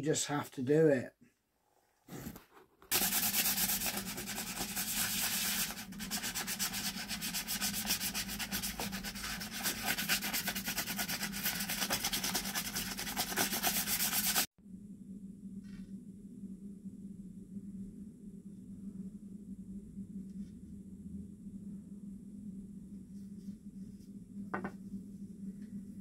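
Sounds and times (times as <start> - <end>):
sandpaper rasping on wood: 2.9 - 14.5
faint steady hum: 14.5 - 26.0.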